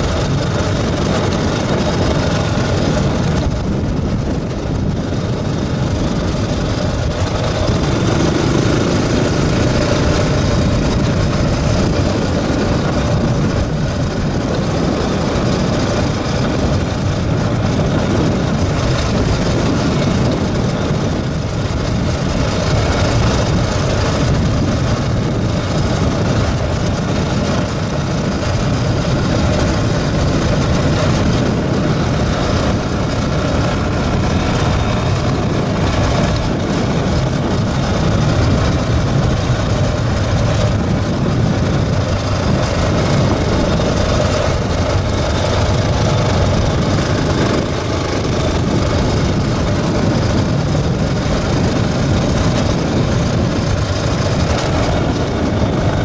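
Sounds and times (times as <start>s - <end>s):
motorcycle engine: 0.0s - 56.0s
wind noise: 0.0s - 56.0s.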